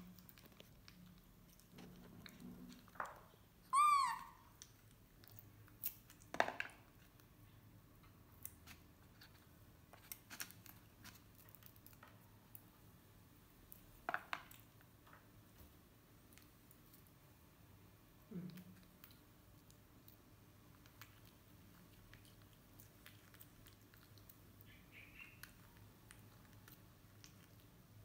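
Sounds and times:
baby monkey high call: 3.7s - 4.5s.

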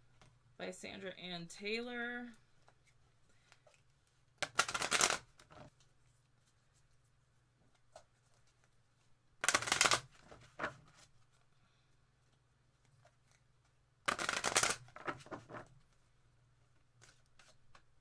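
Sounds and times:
cards being shuffled: 2.6s - 7.0s, 9.4s - 11.5s, 12.3s - 16.0s, 16.9s - 17.9s.

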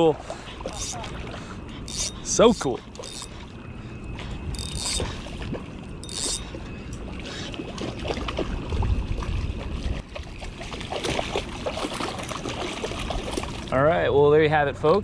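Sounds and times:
small waves lapping: 0.0s - 13.8s
fish thrashing and splashing: 4.2s - 13.7s
wind rumbling on microphone: 7.7s - 13.7s.

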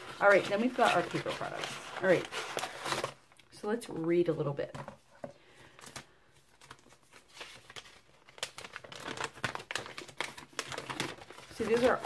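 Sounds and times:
paper crackles: 0.0s - 3.3s, 5.8s - 12.0s
paper rustling and crinkling: 0.0s - 3.4s, 5.7s - 12.0s.

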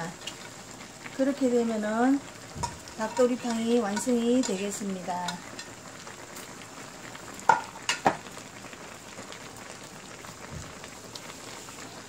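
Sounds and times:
stew bubbling in a pan: 0.0s - 12.0s
metal ladle tapping a pan: 2.6s - 4.6s, 7.5s - 8.2s.

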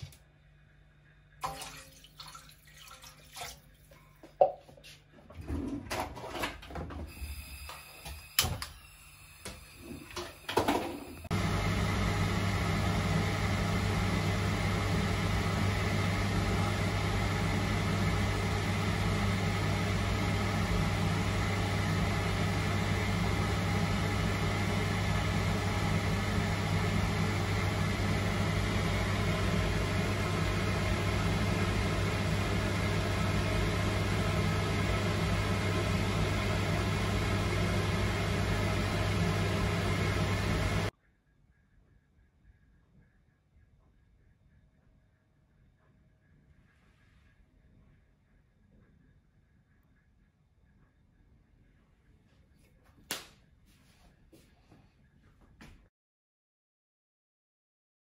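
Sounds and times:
extractor hood fan running: 7.2s - 40.9s.

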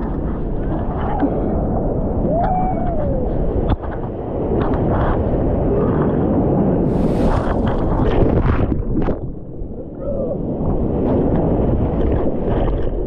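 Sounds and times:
water washing against camera: 0.0s - 13.0s
wave breaking: 0.0s - 13.0s
heavy low rumble: 6.8s - 12.0s.

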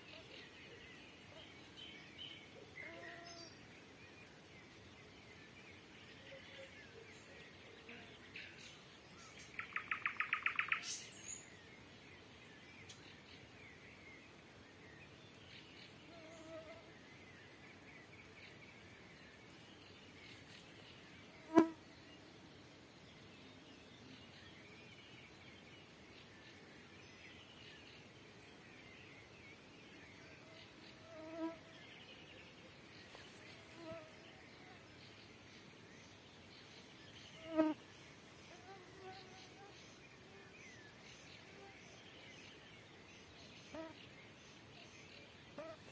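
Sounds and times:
distant nightingale singing: 0.0s - 45.9s
insects buzzing: 21.4s - 21.9s, 36.8s - 39.9s.

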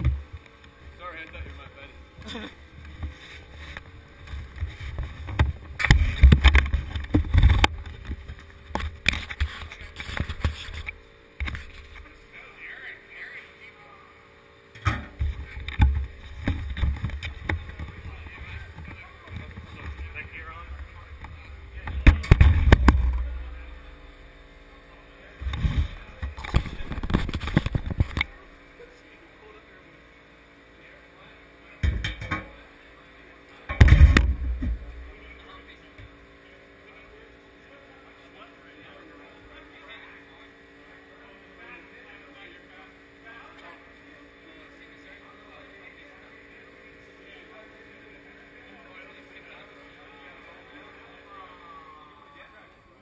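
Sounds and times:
sleeve rubbing against camera: 2.3s - 5.2s
camera handling rumble: 25.4s - 28.3s.

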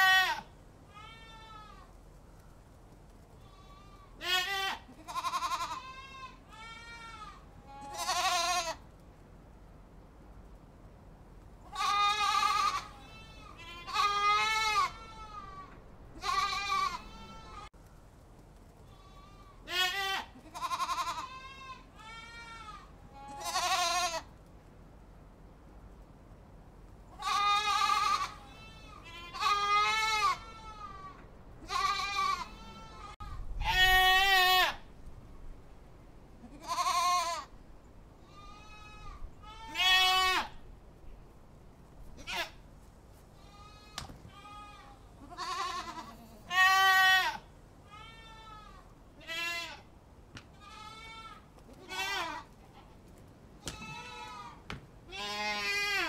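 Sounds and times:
goats bleating: 0.0s - 1.9s, 3.4s - 8.8s, 11.7s - 17.7s, 18.9s - 24.3s, 27.2s - 34.8s, 36.4s - 37.5s, 38.3s - 40.6s, 42.2s - 42.6s, 43.4s - 49.9s, 50.5s - 52.9s, 53.7s - 56.0s.

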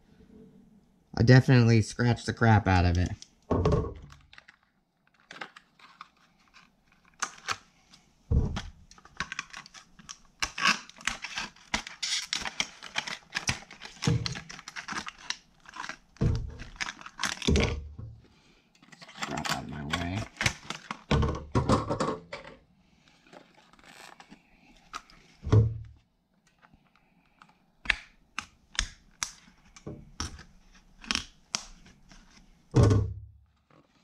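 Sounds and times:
plastic packaging crackling: 4.1s - 7.7s, 8.6s - 17.8s, 18.8s - 21.1s, 23.2s - 25.3s
scissors cutting plastic: 8.9s - 17.5s.

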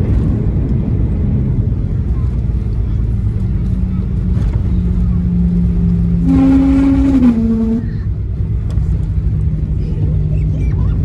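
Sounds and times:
aircraft cabin rumble: 0.0s - 11.0s
humming tone: 4.4s - 8.2s.

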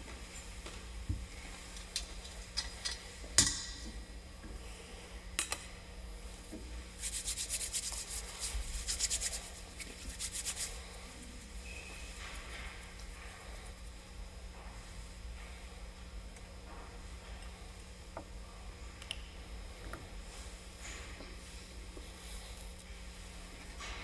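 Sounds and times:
quick rubbing strokes: 7.0s - 11.0s.

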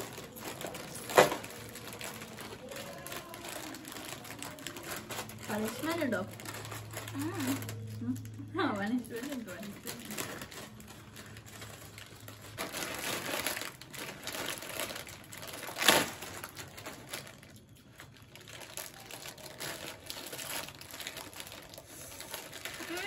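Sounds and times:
crisp packets crinkling: 0.0s - 23.0s
sharp packet crackle: 0.0s - 23.0s.

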